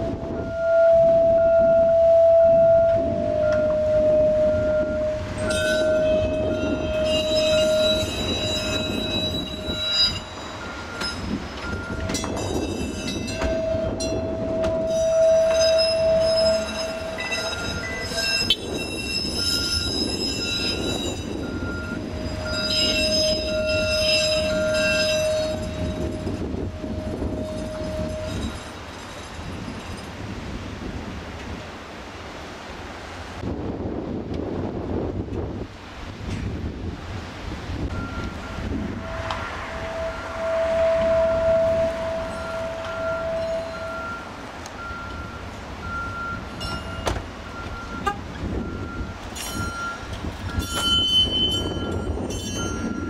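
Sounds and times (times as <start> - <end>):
steel wheels squealing on rails: 0.0 - 30.6, 37.8 - 53.0
streetcar rumble: 0.0 - 53.0
short beeps: 37.9 - 38.7, 42.3 - 51.1.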